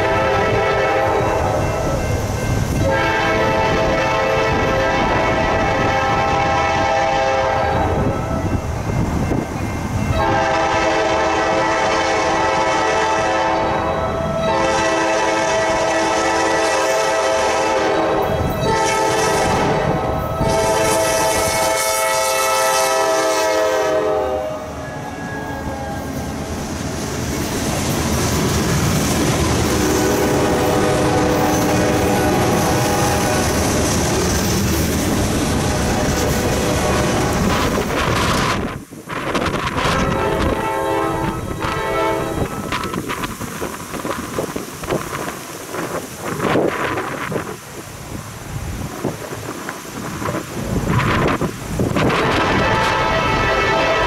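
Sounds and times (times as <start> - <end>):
locomotive air horn blasts: 0.0 - 2.1, 2.8 - 8.2, 10.1 - 26.1, 29.7 - 33.7, 35.6 - 37.6, 39.8 - 43.0, 52.0 - 54.0
train cars rumbling and clacking: 0.0 - 54.0.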